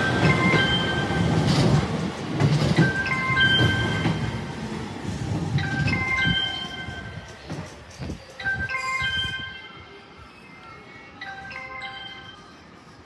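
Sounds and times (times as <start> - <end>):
low rumble of train: 0.0 - 13.0
station platform chime melody: 2.8 - 4.5, 5.5 - 7.3, 8.4 - 10.1, 11.2 - 12.6.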